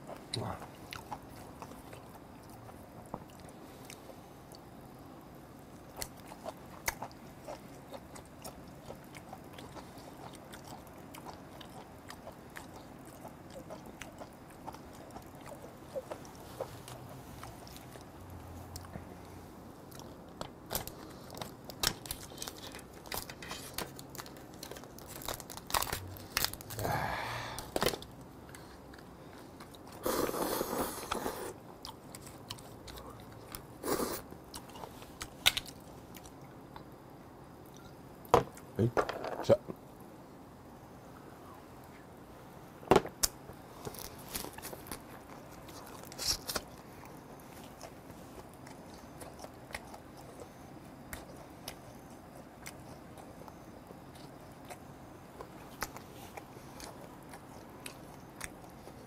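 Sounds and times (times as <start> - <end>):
chewing and crunching crab shell: 0.0 - 19.0, 19.8 - 30.4, 43.2 - 59.0.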